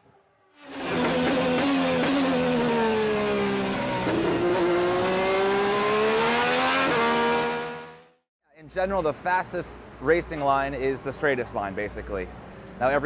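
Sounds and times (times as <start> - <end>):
race car engine at high revs: 0.6 - 8.2.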